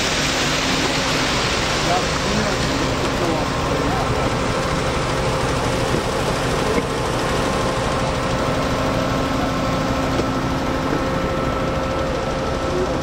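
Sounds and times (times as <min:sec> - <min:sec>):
machine engine rumbling with whine: 0:00.0 - 0:13.0.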